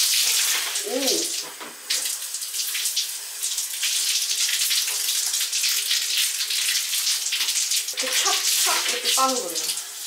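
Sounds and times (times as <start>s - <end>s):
tap water splashing into basin: 3.8s - 9.9s.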